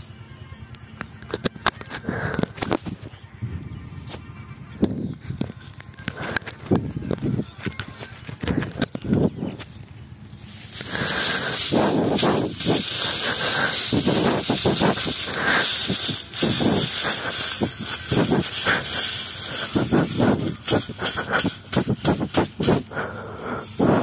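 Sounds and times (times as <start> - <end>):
dry straw rustling and crackling: 7.6 - 24.0
steady hiss: 10.2 - 24.0.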